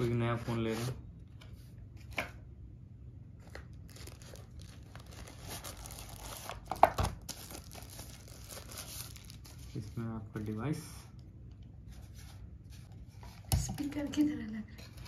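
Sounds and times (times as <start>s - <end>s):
paper wrapping rustling: 3.4s - 11.0s.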